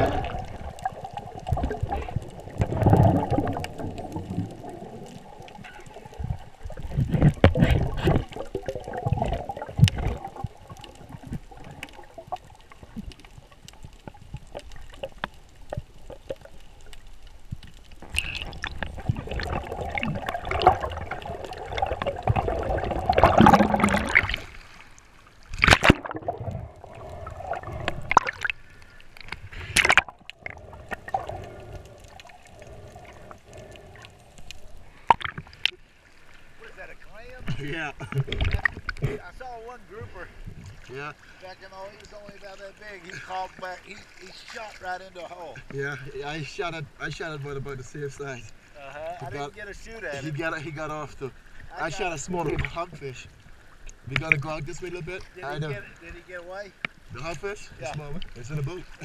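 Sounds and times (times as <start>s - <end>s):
muffled water sloshing and gurgling: 0.0s - 59.0s
sharp water splash: 18.1s - 28.6s, 29.2s - 30.2s.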